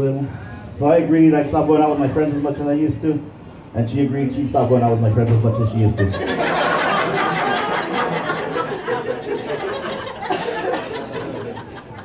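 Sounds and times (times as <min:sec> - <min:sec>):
audience laughing: 0:05.7 - 0:12.0.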